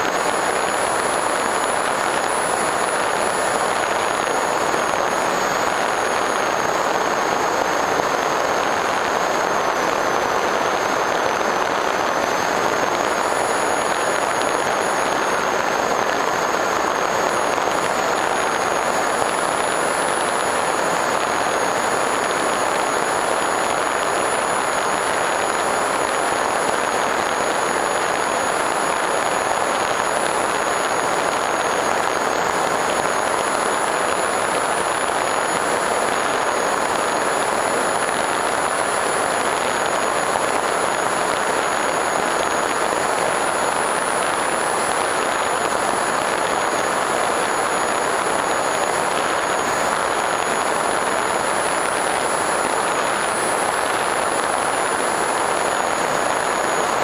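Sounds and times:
rush of air and propeller: 0:00.0 - 0:57.0.

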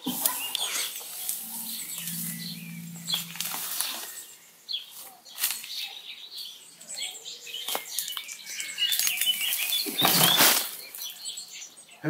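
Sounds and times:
faint bird chirps: 0:00.1 - 0:04.5.

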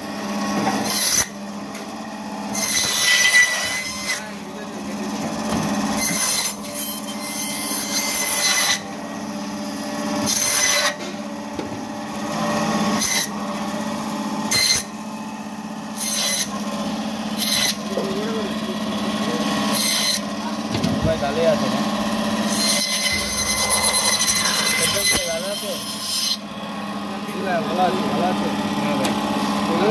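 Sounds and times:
band saw humming: 0:00.2 - 0:29.9
saw blade rasping through fish: 0:05.9 - 0:08.9, 0:22.4 - 0:26.5.

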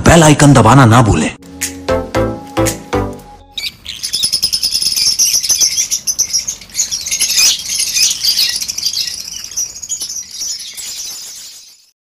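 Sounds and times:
budgerigars chattering and warbling: 0:03.5 - 0:11.8.

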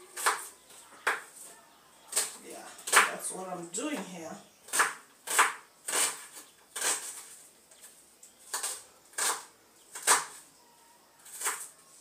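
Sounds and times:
knife chopping on wooden board: 0:04.7 - 0:07.2.

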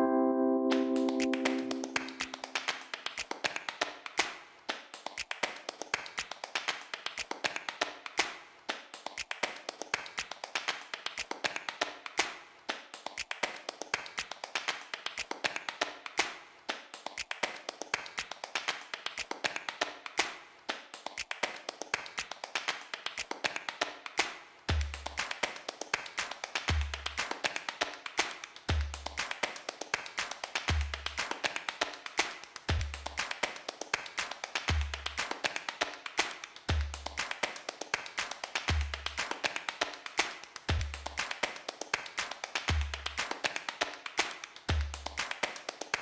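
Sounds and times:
tapping percussion music: 0:00.7 - 0:03.3, 0:38.2 - 0:41.5.

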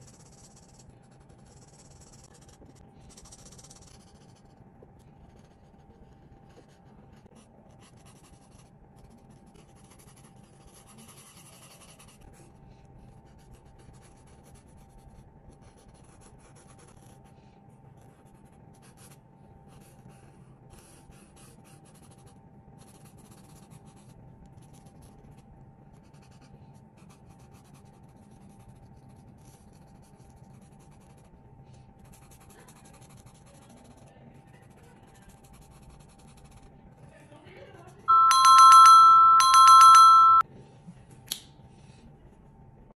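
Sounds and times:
marker rubbing on paper: 0:00.0 - 0:04.6.

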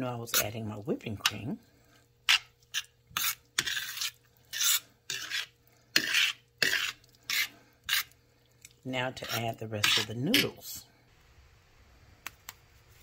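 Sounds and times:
metal utensil scraping a pan: 0:02.3 - 0:08.1, 0:09.0 - 0:10.8.

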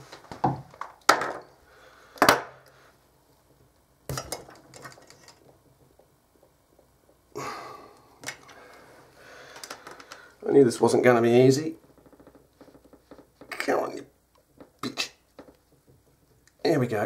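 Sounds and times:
clicks and knocks of pliers and wire: 0:04.1 - 0:07.2, 0:08.2 - 0:08.6, 0:09.6 - 0:10.3.

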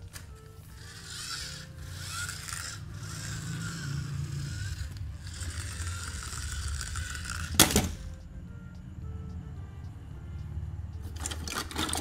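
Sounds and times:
toy truck motor whirring: 0:00.0 - 0:08.2, 0:11.0 - 0:12.0.

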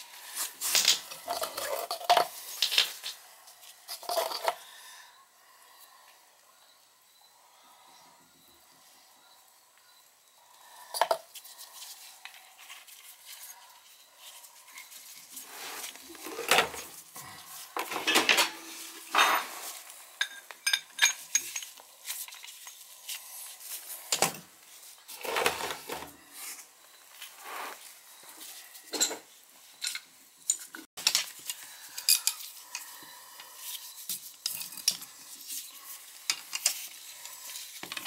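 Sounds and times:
metal tools clinking and clanking: 0:00.4 - 0:03.2, 0:03.8 - 0:04.6, 0:15.8 - 0:22.8, 0:28.8 - 0:32.9.

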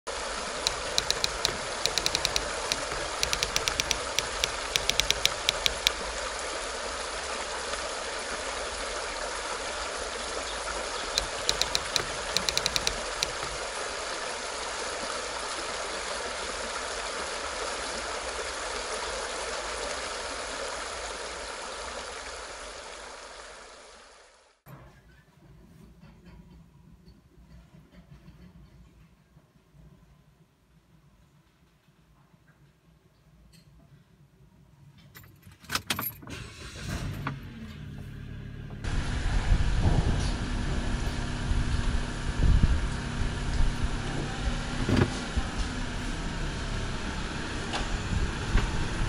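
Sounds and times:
rapid sharp high clicks: 0:00.7 - 0:06.0, 0:11.2 - 0:13.6.

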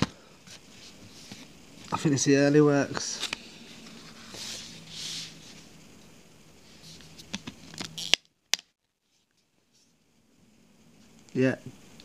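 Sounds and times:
hand sliding over card: 0:02.9 - 0:05.7.

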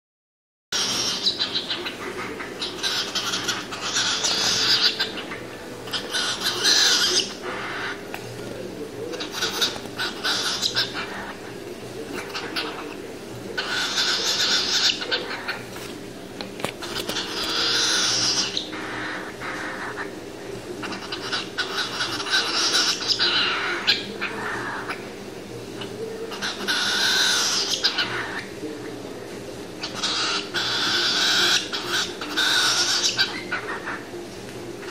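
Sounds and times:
cockatiel chattering and chirping: 0:00.8 - 0:08.0, 0:09.1 - 0:13.0, 0:13.6 - 0:15.7, 0:16.8 - 0:20.2, 0:20.8 - 0:25.1, 0:25.8 - 0:28.5, 0:29.8 - 0:34.1
bird beak scraping food: 0:00.8 - 0:13.0, 0:16.6 - 0:20.1.

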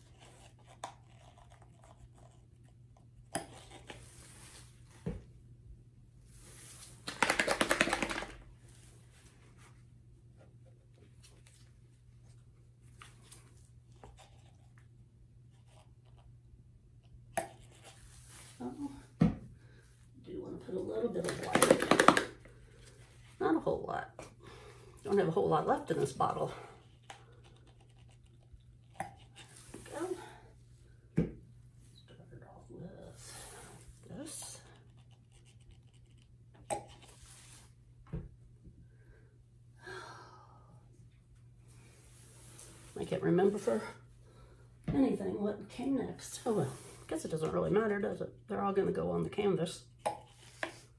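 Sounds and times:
low steady hum: 0:07.9 - 0:50.9
plastic bottle and cup handling: 0:21.2 - 0:23.0.

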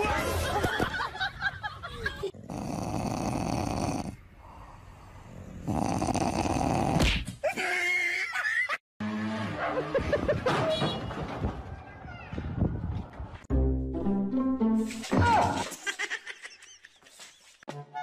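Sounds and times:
dog making rough vocal sound: 0:02.4 - 0:04.2, 0:05.5 - 0:07.1.

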